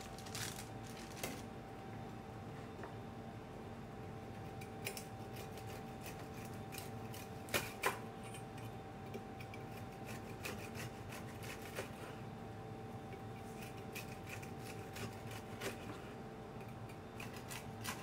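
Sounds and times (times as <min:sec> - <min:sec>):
bread knife sawing through crust: 0:09.8 - 0:11.9, 0:13.6 - 0:15.8.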